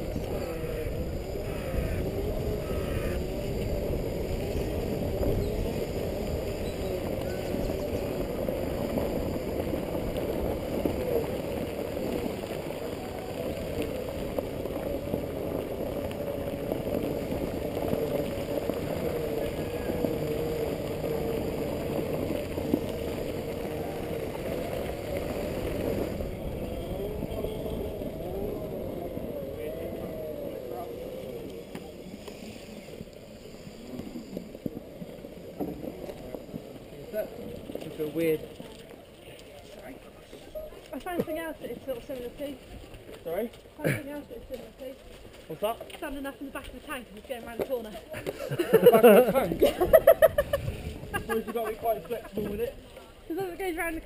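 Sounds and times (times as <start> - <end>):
electric motors whining: 0.0 - 35.4.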